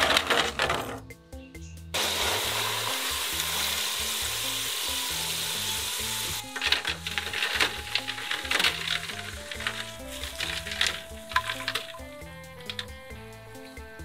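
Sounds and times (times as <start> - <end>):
background music with bass: 0.0 - 14.0
fries sizzling in oil: 2.0 - 12.7.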